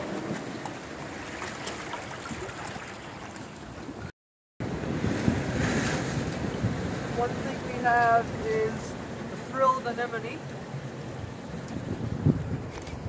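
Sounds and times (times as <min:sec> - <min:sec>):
sea and wind noise: 0:00.0 - 0:13.0.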